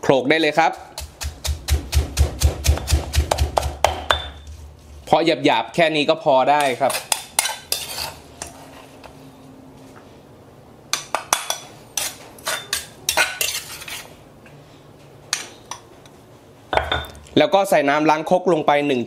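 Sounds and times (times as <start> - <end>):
spoon scraping stone mortar: 0.6 - 4.6, 6.6 - 8.9, 11.6 - 14.2.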